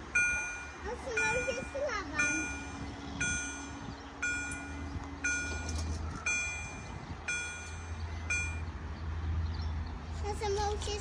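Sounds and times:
crossing warning bell ringing: 0.0s - 8.9s
low motor hum: 0.0s - 11.0s.

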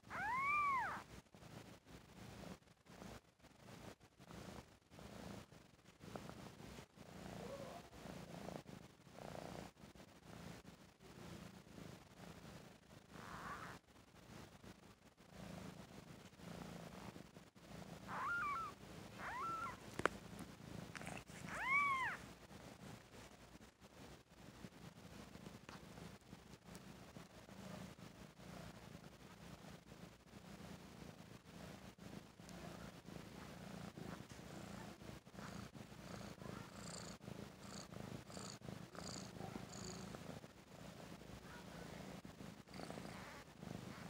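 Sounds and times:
cat mewing: 0.0s - 1.0s, 18.1s - 19.8s, 21.0s - 22.2s
kittens peeping: 0.0s - 1.1s, 18.0s - 19.9s, 20.9s - 22.2s
cat purring: 0.0s - 44.0s.

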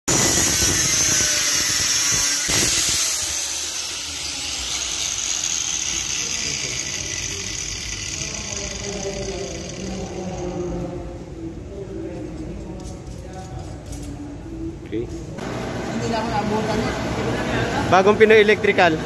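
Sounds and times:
angle grinder cutting steel rod: 0.1s - 10.6s
steady background noise: 0.1s - 19.0s.

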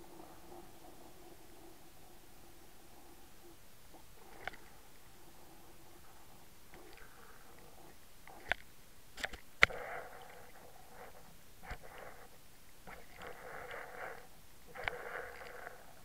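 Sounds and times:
muffled underwater rushing: 9.7s - 16.0s.

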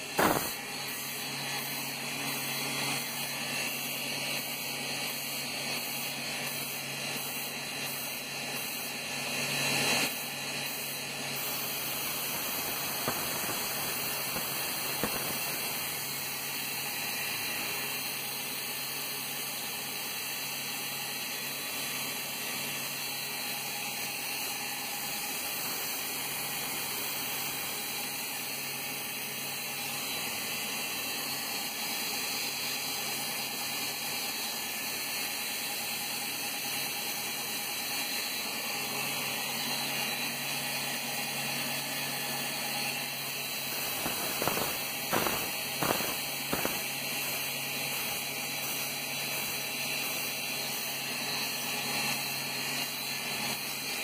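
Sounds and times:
paint spray gun hissing: 0.0s - 1.8s, 5.1s - 9.1s, 10.1s - 16.9s, 43.2s - 48.9s.

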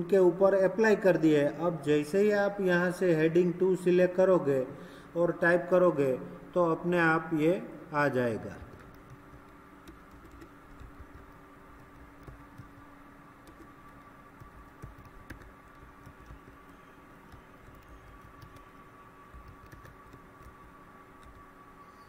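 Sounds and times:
background hum: 0.0s - 22.0s
keyboard typing: 8.6s - 21.5s.

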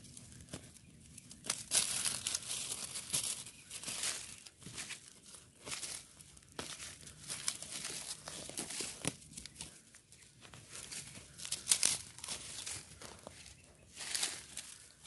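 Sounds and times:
dry leaves rustling and crackling: 0.0s - 15.0s.

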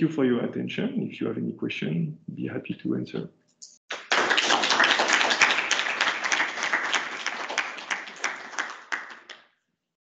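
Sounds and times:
audience applauding: 3.9s - 9.4s.

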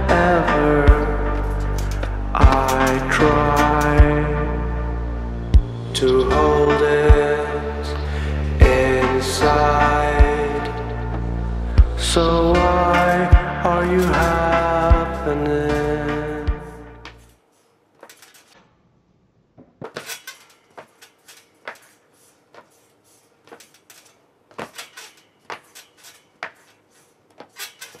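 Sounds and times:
background song: 0.0s - 17.2s
trampoline clicks and clacks: 0.8s - 4.4s, 11.8s - 18.8s, 19.6s - 28.0s.

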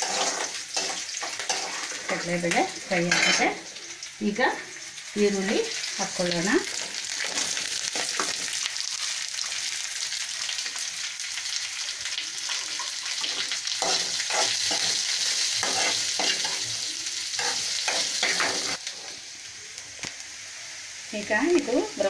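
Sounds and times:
spoon scraping pan: 0.0s - 3.6s, 13.2s - 16.7s, 17.4s - 19.2s
onions sizzling in oil: 0.0s - 22.0s.

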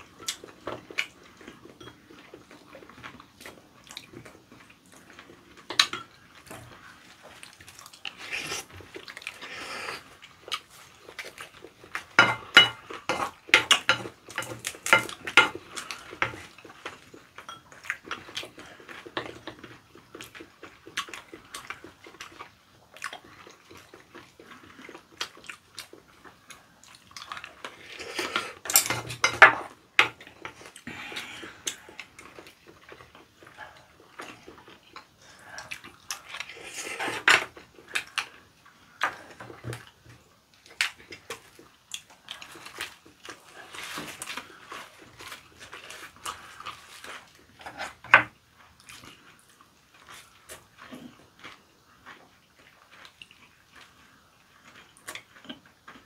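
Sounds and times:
chewing and smacking: 0.0s - 56.0s
chopsticks and spoon clicking on bowls: 12.2s - 15.6s.

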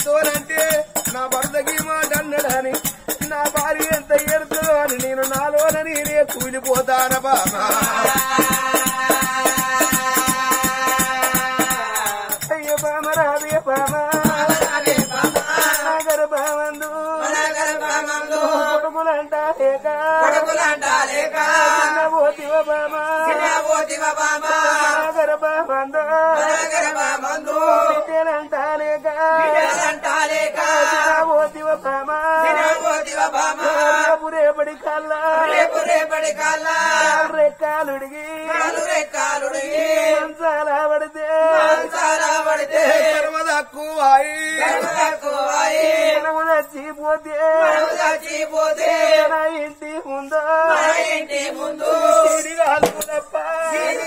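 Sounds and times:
man singing folk song: 0.0s - 17.3s, 24.9s - 26.4s, 49.2s - 50.8s, 52.2s - 54.0s
jingling bells: 0.0s - 18.1s.

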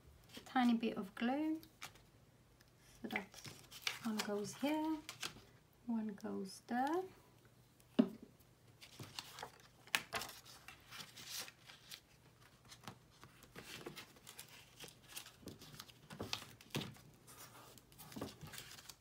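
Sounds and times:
paper rustling: 3.1s - 5.5s, 8.8s - 19.0s.

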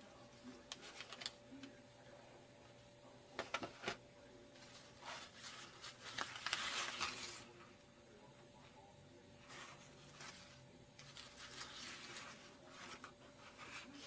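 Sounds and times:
crumpled paper rustling: 0.5s - 1.4s, 3.5s - 7.7s, 9.4s - 14.0s.

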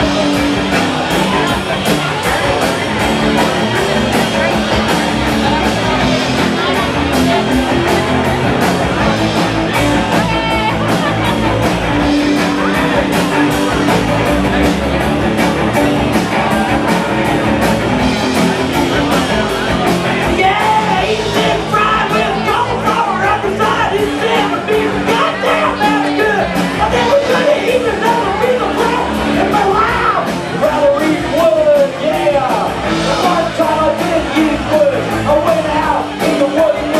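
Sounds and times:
drum and cymbal beat: 0.0s - 36.9s
live rock band playing: 0.0s - 36.9s
person singing: 18.9s - 36.9s.

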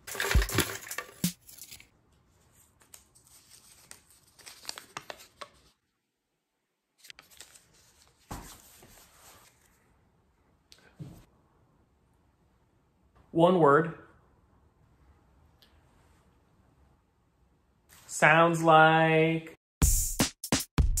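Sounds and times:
paper slips rustling: 0.0s - 1.8s
paper slip being unfolded: 2.5s - 5.8s, 7.0s - 9.8s.

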